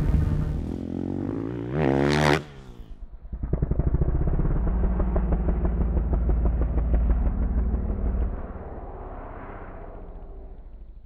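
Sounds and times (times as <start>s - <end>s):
dirt bike engine revving: 0.0s - 6.2s.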